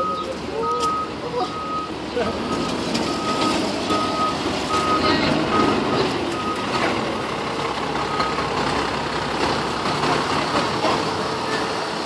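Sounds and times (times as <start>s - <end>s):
truck backup alarm beeping: 0.0s - 8.7s
truck engine running: 0.0s - 12.0s.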